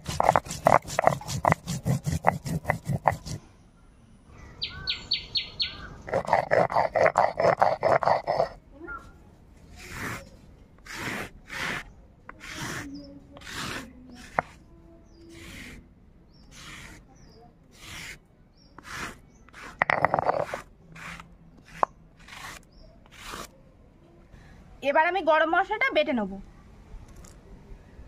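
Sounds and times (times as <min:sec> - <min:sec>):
stone grinding on stone slab: 0:00.0 - 0:03.4, 0:06.1 - 0:08.6, 0:09.7 - 0:14.6, 0:15.3 - 0:15.8, 0:16.5 - 0:17.1, 0:17.7 - 0:18.2, 0:18.8 - 0:23.5.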